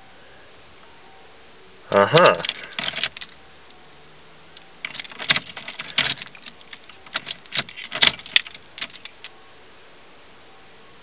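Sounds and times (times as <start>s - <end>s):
key ring jangling and clicking: 2.3s - 3.4s, 4.8s - 9.3s.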